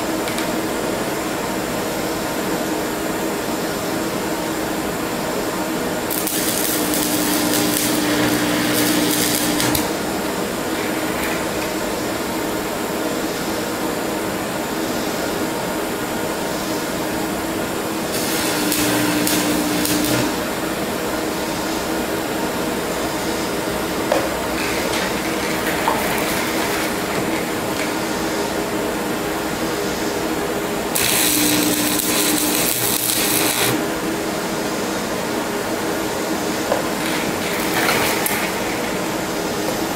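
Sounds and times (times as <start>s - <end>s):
propane torches rushing: 6.0s - 11.8s, 18.0s - 20.7s, 24.3s - 28.6s, 30.7s - 34.0s, 36.7s - 39.9s
crackling welding arc: 6.0s - 12.1s, 18.0s - 20.7s, 24.0s - 29.5s, 30.1s - 34.0s, 36.6s - 39.9s.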